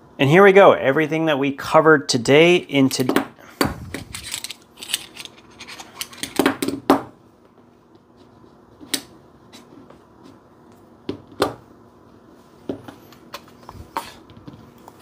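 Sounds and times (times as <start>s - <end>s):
metal tools clicking and clattering: 4.0s - 6.4s.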